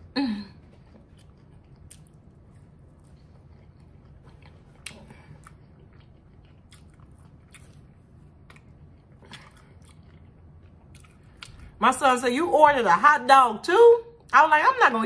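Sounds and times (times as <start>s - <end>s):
chewing fries: 0.6s - 11.8s.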